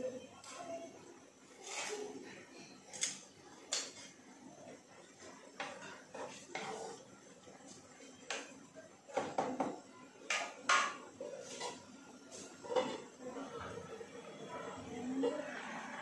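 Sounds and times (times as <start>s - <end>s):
wooden spatula scraping clay pot: 1.6s - 2.1s.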